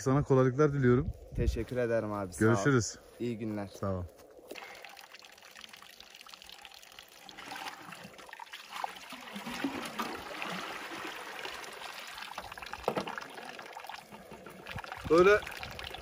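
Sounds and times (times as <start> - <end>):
water trickling and pouring: 3.2 - 16.0.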